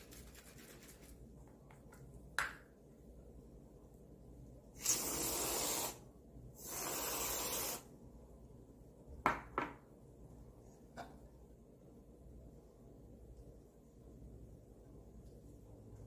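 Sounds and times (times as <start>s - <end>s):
aerosol can hissing: 4.8s - 6.0s, 6.6s - 7.9s.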